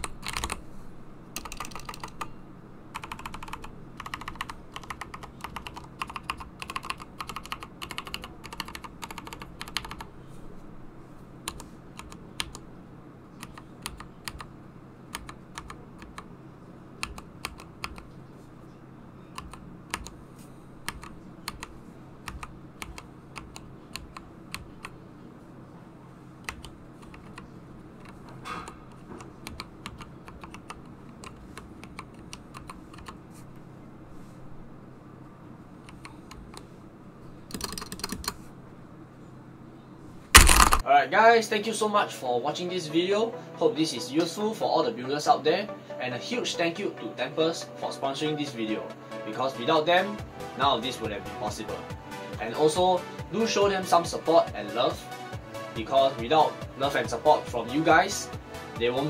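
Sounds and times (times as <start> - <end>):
mechanical keyboard typing: 0.0 - 0.6, 1.4 - 2.3, 2.9 - 10.1, 11.5 - 12.6, 13.4 - 14.5, 15.1 - 16.3, 17.0 - 18.1, 19.3 - 20.2, 20.9 - 25.0, 26.4 - 33.2, 37.5 - 38.4, 40.4 - 40.8.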